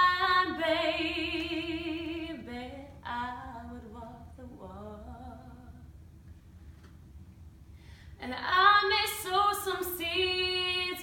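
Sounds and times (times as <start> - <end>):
woman singing unaccompanied: 0.0 - 5.8, 8.2 - 11.0.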